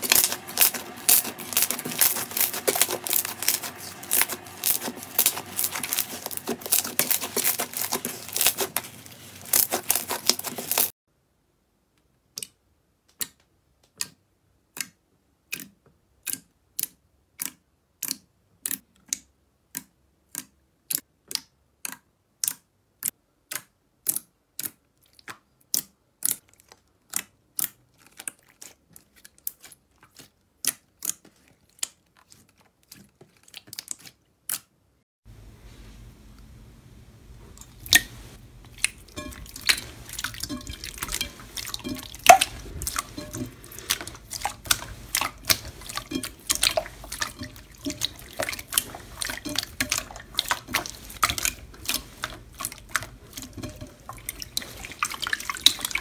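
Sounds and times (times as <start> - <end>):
slime popping: 0.0 - 10.9, 38.7 - 53.8
slime squishing and crackling: 0.0 - 11.0, 24.1 - 34.7, 37.6 - 56.0.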